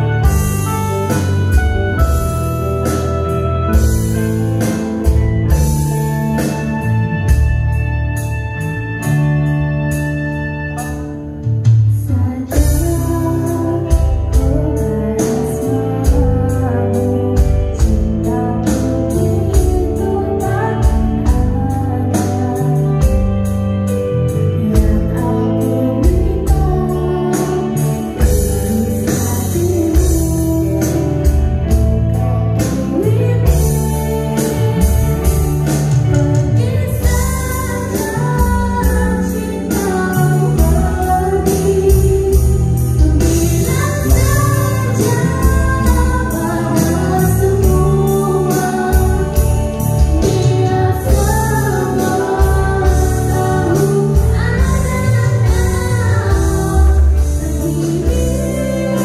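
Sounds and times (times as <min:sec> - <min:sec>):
electronic drum kit beat: 0:00.0 - 0:10.2, 0:33.5 - 0:59.0
electric bass: 0:00.0 - 0:59.0
organ-like keyboard chords: 0:00.0 - 0:59.0
girl singing into a microphone: 0:11.9 - 0:59.0.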